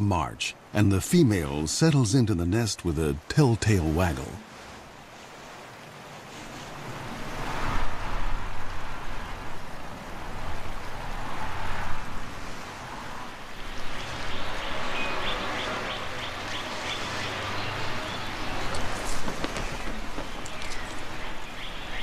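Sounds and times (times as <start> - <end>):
rushing wind: 3.8 - 22.0
bird chirping: 14.0 - 22.0.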